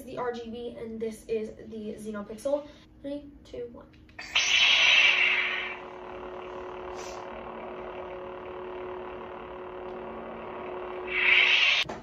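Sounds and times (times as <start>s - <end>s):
lightsaber hum: 4.2s - 11.9s.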